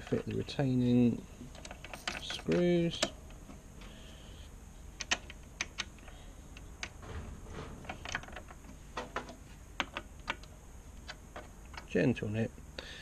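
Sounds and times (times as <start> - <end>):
metal clicks and taps: 5.0 - 7.0, 7.9 - 11.9.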